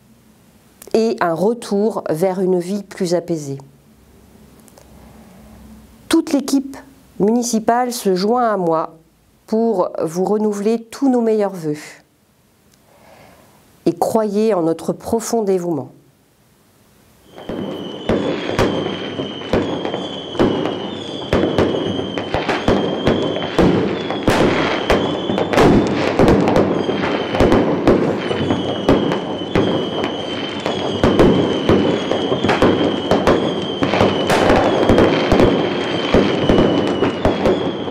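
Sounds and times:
fireworks bangs and crackling: 17.2 - 37.9
high firework whistle: 17.2 - 37.9.

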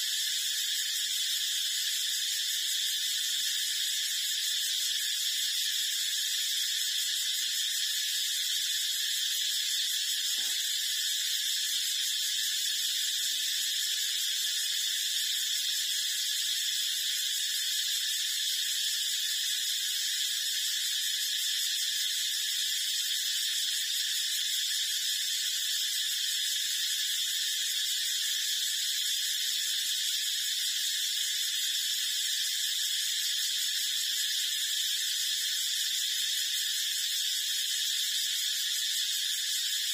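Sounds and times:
high-pitched hiss: 0.0 - 39.9.

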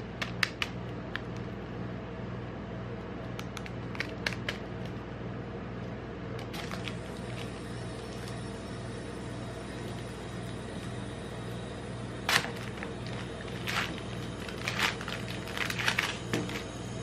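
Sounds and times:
low mechanical hum: 0.0 - 17.0
plastic wrapper crinkling: 6.4 - 8.4, 12.3 - 16.7.

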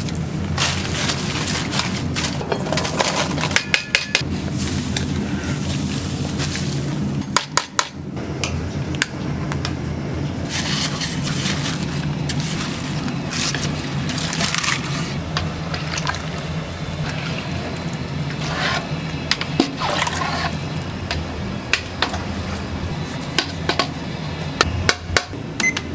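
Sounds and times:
low kitchen hum: 0.0 - 25.9
wooden paddle sloshing in stockpot: 10.5 - 20.6.

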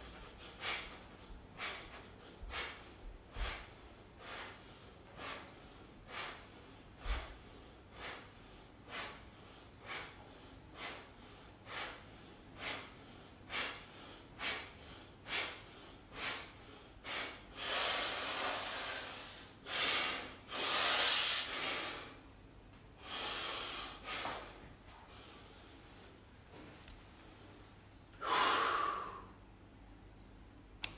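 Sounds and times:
man breathing out sharply: 0.1 - 22.2, 28.2 - 29.4.

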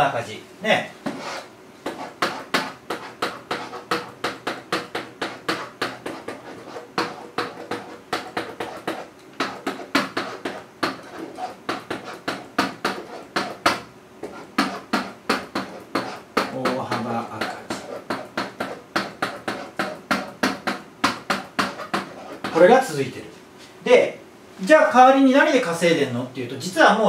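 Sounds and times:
pen tapping on whiteboard: 1.0 - 22.6.

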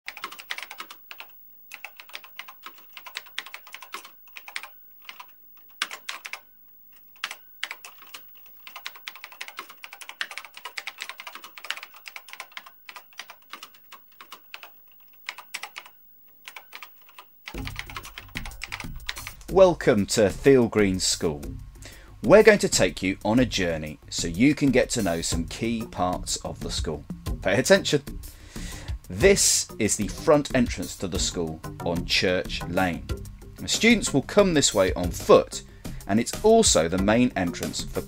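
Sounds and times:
keyboard key clicks: 0.1 - 6.4, 16.5 - 19.5.

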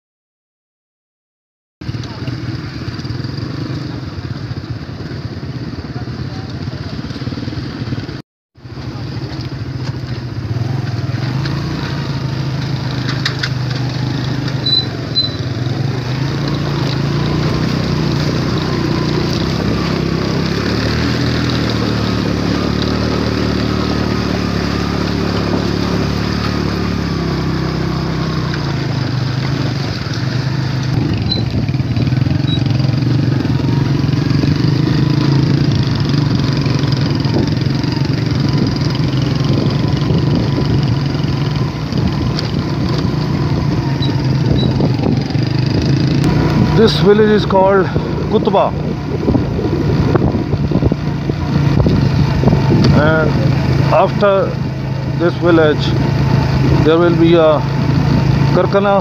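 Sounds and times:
small motorcycle engine: 1.8 - 59.0.

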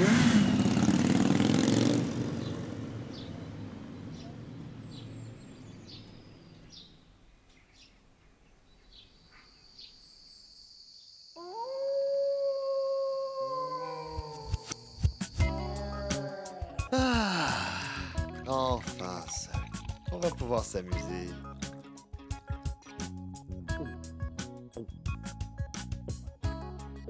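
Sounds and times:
motorcycle engine pulling away: 0.0 - 6.9
long animal howl: 11.4 - 14.8, 15.5 - 18.2.

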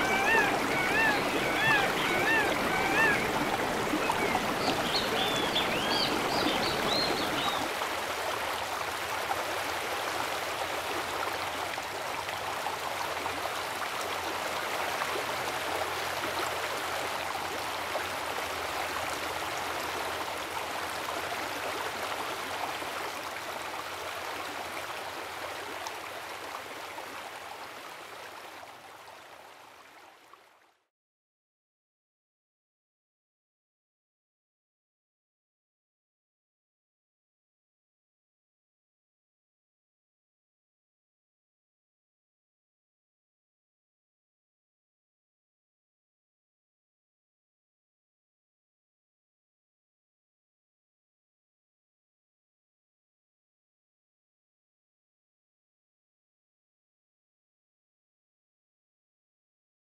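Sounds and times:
river water rushing: 0.0 - 30.3.

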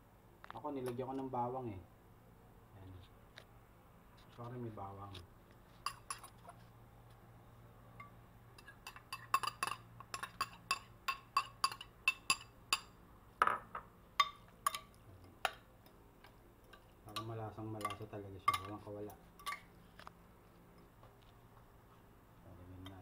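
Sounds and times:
metal cutlery clinking on ceramic bowls: 5.8 - 6.3, 8.0 - 12.9, 14.2 - 16.0, 16.6 - 19.7.

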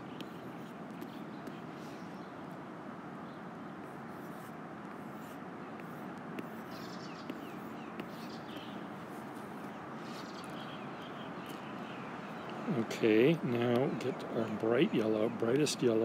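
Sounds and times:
outdoor background noise: 0.0 - 16.0.

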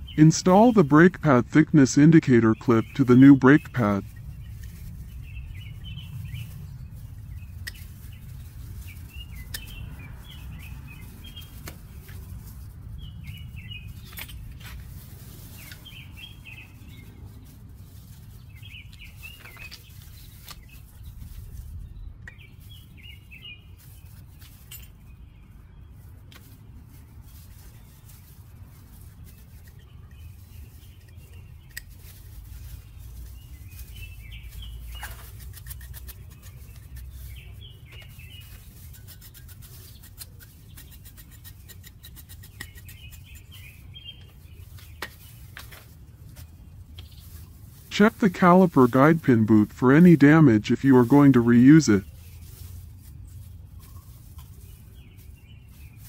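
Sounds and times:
steady low rumble: 0.0 - 23.0
small birds chirping: 0.0 - 56.0.

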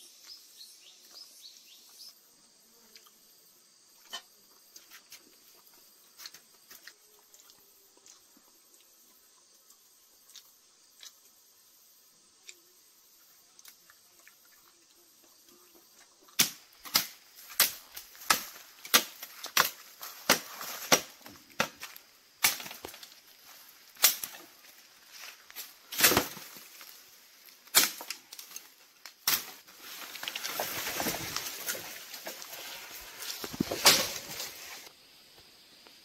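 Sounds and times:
machete chopping bamboo: 16.4 - 23.0, 24.0 - 24.4, 25.9 - 26.6, 27.7 - 28.5, 33.6 - 34.3
rustle of leaves: 16.4 - 36.0.

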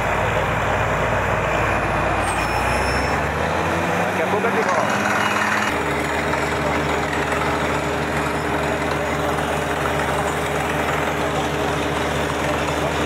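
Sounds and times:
engine and compressor drone: 0.0 - 13.0.

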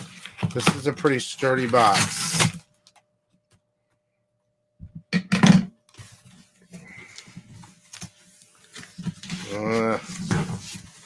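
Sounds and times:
cardboard scraping and rustling: 0.0 - 2.6, 7.7 - 11.0.

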